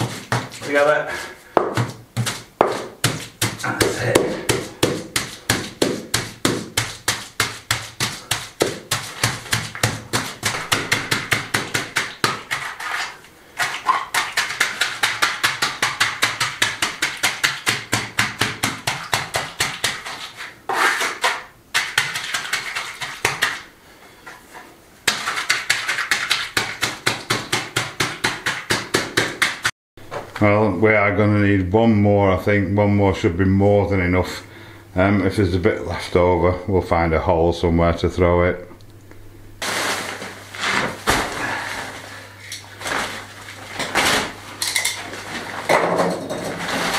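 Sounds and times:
board tamping knocks: 1.6 - 12.6.

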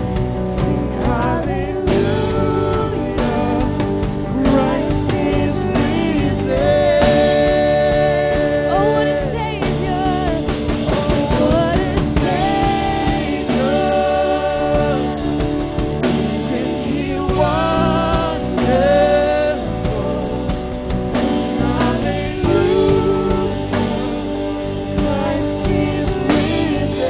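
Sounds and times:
acoustic guitar: 0.0 - 27.0
keyboard: 0.0 - 27.0
man singing: 0.0 - 27.0
woman singing: 0.5 - 15.6.

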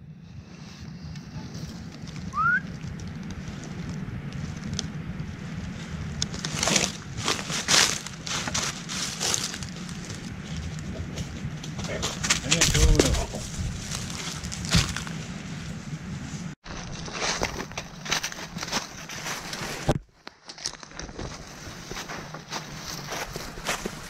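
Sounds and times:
steady low rumble: 0.0 - 19.6
footsteps crunching dry leaves: 1.7 - 15.3, 16.6 - 24.0
short rising whistle: 2.3 - 2.7.

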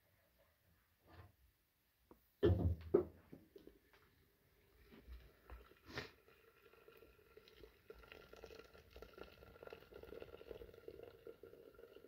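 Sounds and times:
water poured into metal teapot: 5.2 - 12.0.

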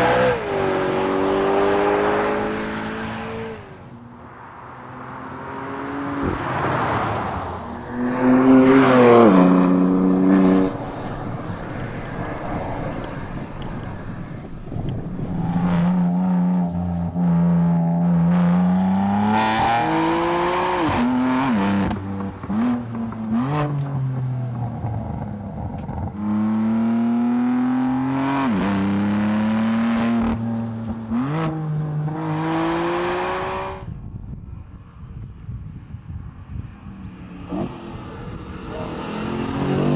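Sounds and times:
car engine accelerating hard with upshifts: 0.0 - 3.8, 14.8 - 33.9, 37.4 - 39.9.

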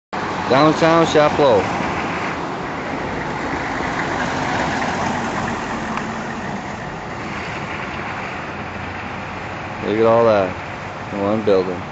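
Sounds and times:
constant street hiss: 0.2 - 11.9
vehicle engine running: 1.0 - 9.8.

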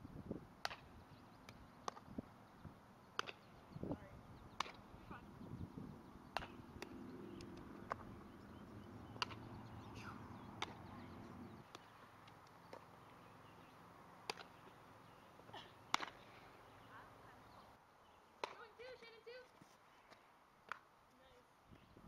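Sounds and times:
faint low background hum: 0.0 - 22.0.

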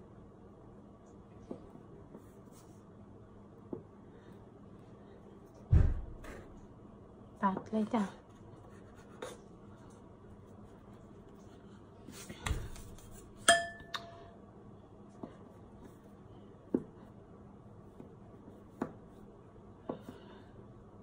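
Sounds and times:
steel blade ringing clink: 13.5 - 14.3.

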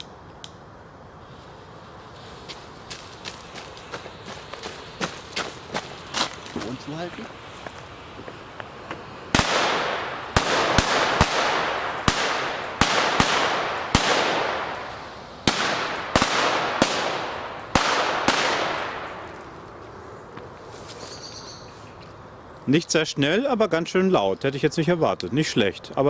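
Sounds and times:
firecracker bangs echoing: 8.8 - 19.4.

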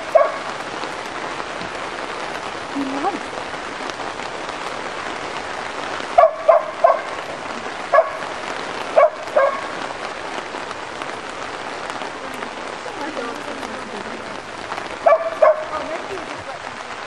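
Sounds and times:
dog barking sharply: 0.1 - 0.5, 6.2 - 7.2, 7.9 - 8.3, 9.0 - 9.8, 15.0 - 15.7.

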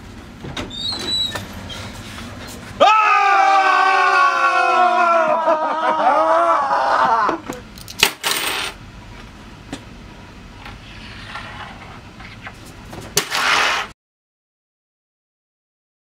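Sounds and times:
long loud yell: 2.8 - 7.4
coins clattering onto wooden table: 7.9 - 8.8.

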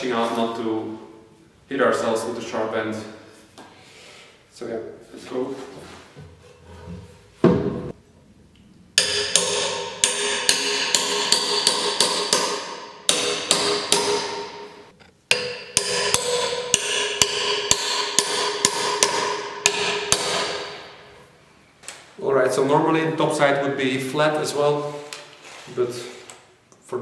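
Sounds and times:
hammering metal log dogs: 9.0 - 21.1.

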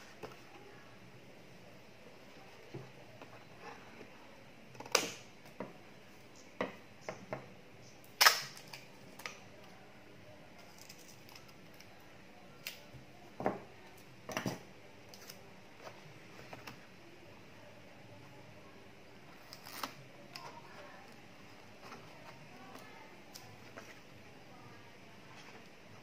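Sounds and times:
packing tape handled and cut: 10.6 - 12.9, 15.1 - 15.5, 19.4 - 24.0.

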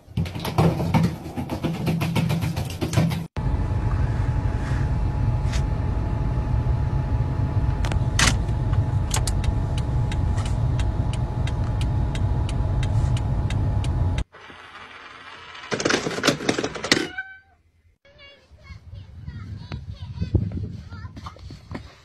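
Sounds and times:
car engine rumbling: 3.3 - 14.3.

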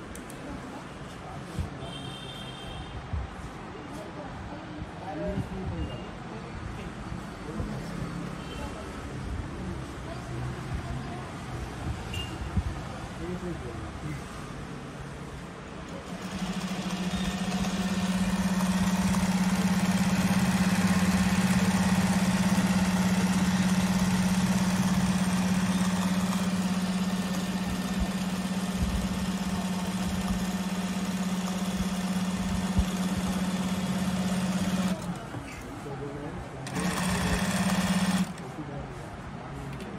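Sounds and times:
sewing machine humming: 15.9 - 35.2, 36.6 - 38.4.

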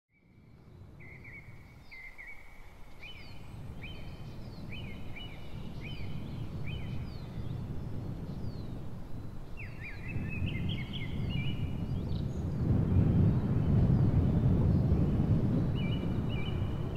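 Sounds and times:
small birds chirping: 0.4 - 8.8.

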